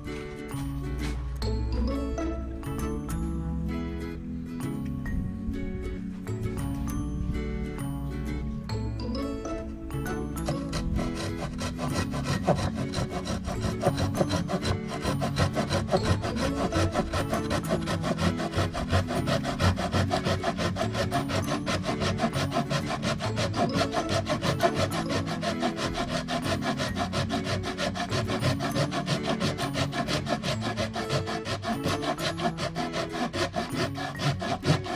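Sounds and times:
hand saw cutting wood: 0.0 - 1.4, 9.9 - 34.9
background music: 0.0 - 34.9.

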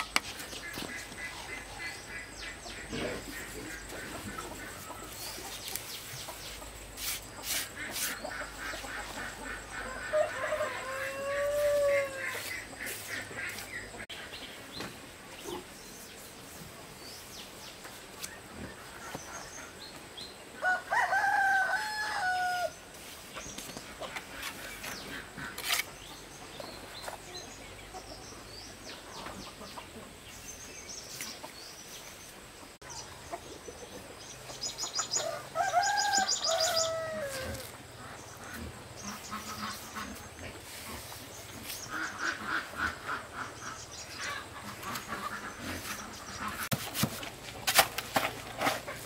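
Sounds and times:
rooster crowing: 9.8 - 12.5, 20.6 - 22.7, 35.2 - 37.6.

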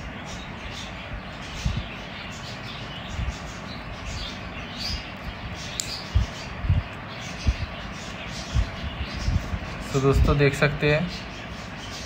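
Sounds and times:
sharp click: 5.7 - 6.0.

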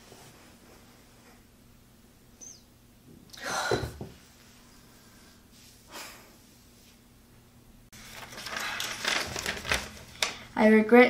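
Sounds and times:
woman sighing: 3.3 - 4.1.

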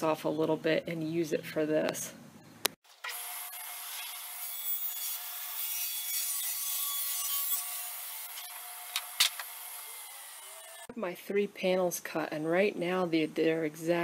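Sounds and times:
table saw cutting plywood: 3.0 - 10.9.

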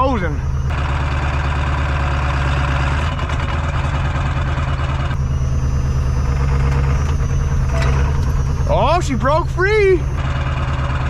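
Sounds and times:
diesel engine fast idle: 0.0 - 11.0.

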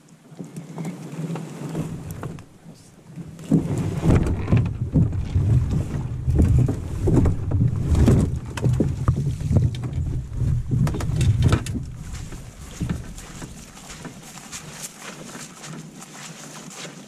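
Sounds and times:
canoe hull scraping against brush: 0.8 - 17.0
heavy rumbling handling noise: 1.6 - 14.8.

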